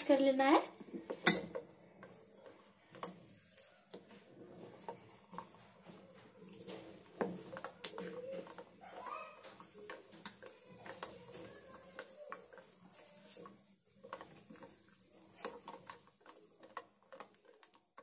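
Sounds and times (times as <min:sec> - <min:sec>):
spoon clinking against glass bowl: 0:01.1 - 0:01.6.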